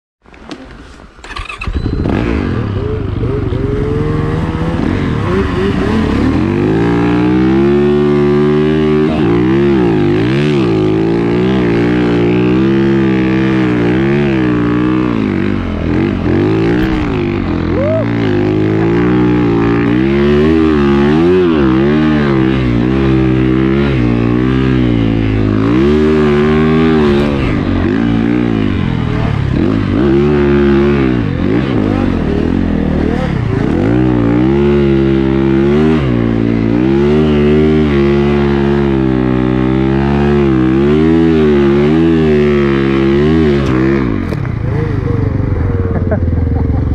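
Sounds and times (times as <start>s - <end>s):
snowbike engine revving: 1.2s - 46.9s.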